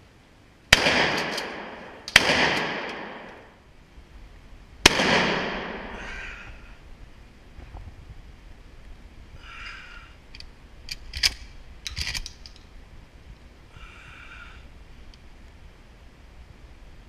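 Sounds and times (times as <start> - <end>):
shotgun metallic clicks: 0.8 - 3.4, 10.3 - 12.7.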